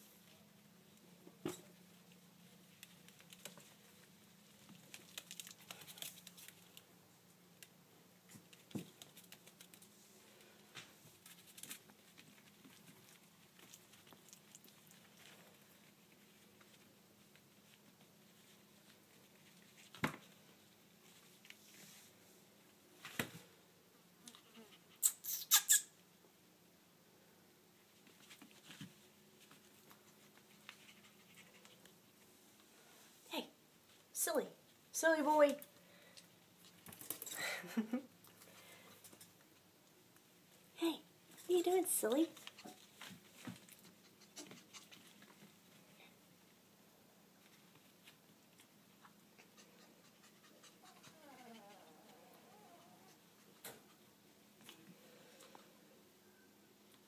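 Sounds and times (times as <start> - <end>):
puppies scuffling in dog bed: 27.9 - 31.8.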